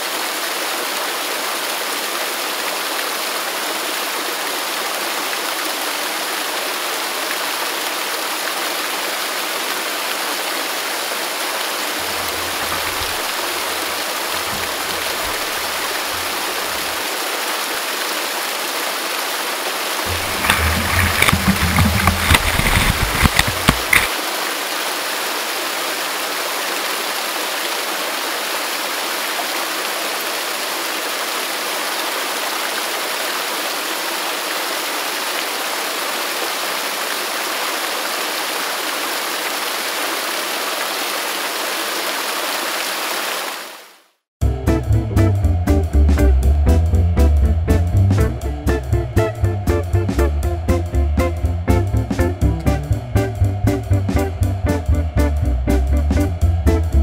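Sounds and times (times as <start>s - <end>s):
fast river water: 0.0s - 44.1s
waterfall roaring: 0.0s - 44.1s
uneven rumbling bursts: 44.4s - 57.0s.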